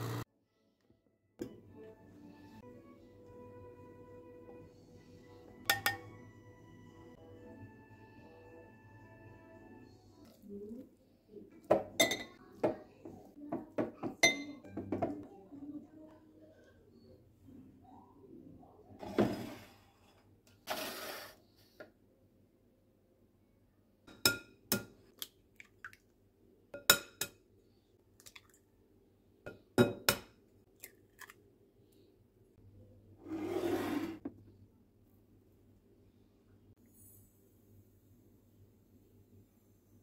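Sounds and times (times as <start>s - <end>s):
glass dishes clinking and scraping: 5.7s - 6.2s, 11.8s - 12.4s.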